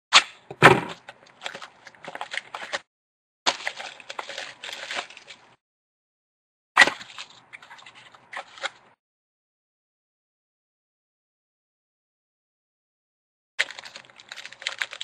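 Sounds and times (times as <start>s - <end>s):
foil wrapper crinkling and tearing: 1.0s - 2.8s, 3.5s - 5.6s, 13.6s - 15.0s.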